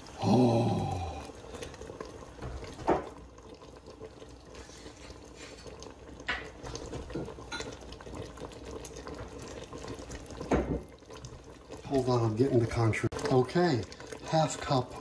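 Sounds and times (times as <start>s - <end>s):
caramel bubbling in pot: 0.0s - 15.0s
metal clink on pot: 7.1s - 7.8s.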